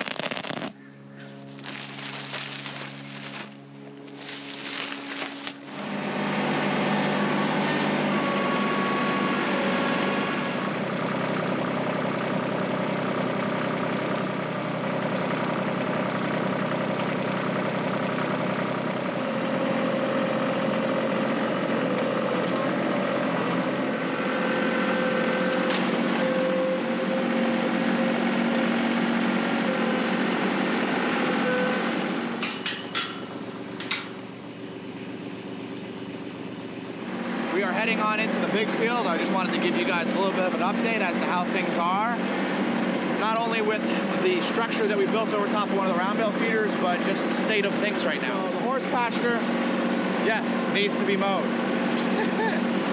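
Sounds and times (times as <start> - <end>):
tractor engine running: 0.0 - 52.9
sharp metal clanks: 32.4 - 34.2.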